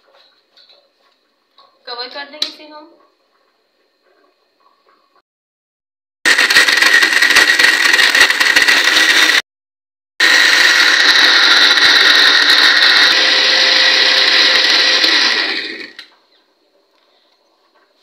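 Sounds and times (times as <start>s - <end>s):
electric blender running: 6.3s - 9.4s, 10.2s - 16.1s.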